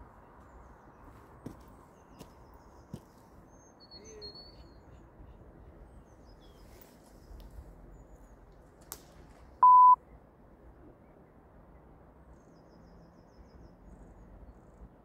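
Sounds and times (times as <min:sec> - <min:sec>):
faint outdoor background noise: 0:00.0 - 0:15.0
short electronic beep: 0:09.6 - 0:10.0.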